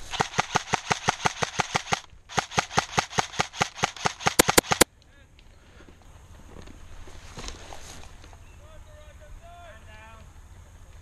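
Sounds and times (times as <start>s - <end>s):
airsoft rifle rapid shots: 0.0s - 4.9s.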